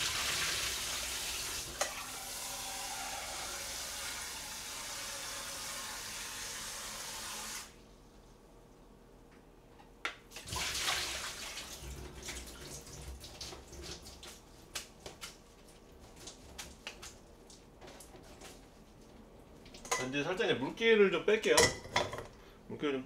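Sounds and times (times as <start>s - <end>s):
tap water splashing in sink: 10.4s - 15.3s.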